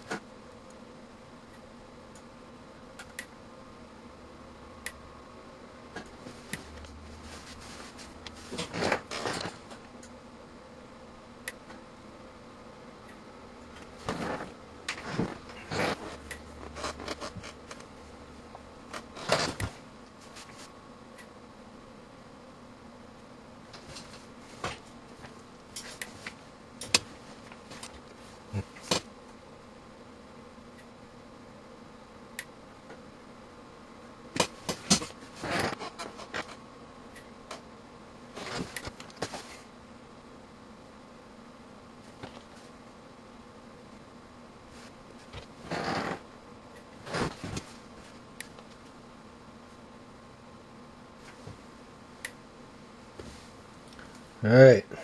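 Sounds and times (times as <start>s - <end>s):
electrical clicks and snaps: 3.0s - 3.4s, 23.7s - 29.1s, 38.4s - 39.2s.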